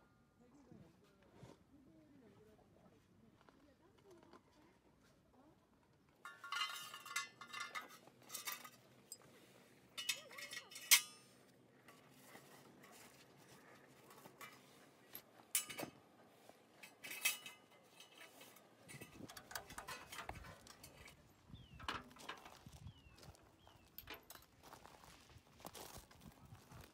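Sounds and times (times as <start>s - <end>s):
metal stove parts clinking: 6.2s - 9.3s, 9.9s - 12.2s, 14.1s - 16.0s, 16.8s - 22.6s, 23.8s - 24.5s
footsteps on gravel: 22.0s - 26.9s.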